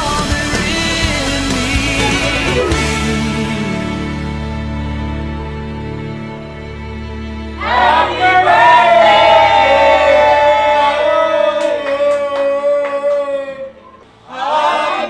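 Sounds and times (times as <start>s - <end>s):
soft background music: 0.0s - 14.2s
people clapping: 7.6s - 14.1s.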